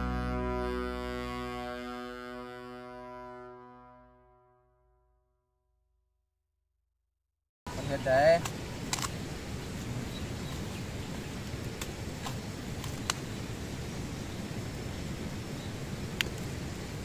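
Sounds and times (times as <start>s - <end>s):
campfire crackles and knocks: 11.4s - 13.3s.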